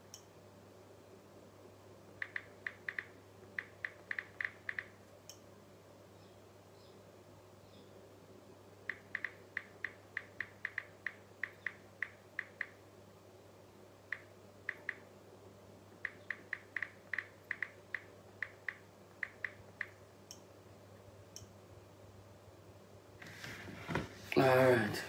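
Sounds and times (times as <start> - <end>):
faint low electrical hum: 0.0 - 25.0
smartphone keyboard clicks: 2.2 - 5.0, 8.9 - 12.8, 14.1 - 15.0, 16.0 - 20.4.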